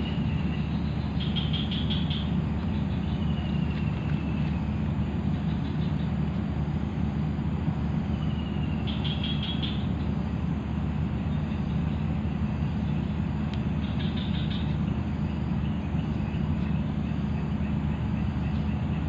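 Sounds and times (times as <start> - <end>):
low mechanical drone: 0.0 - 19.0.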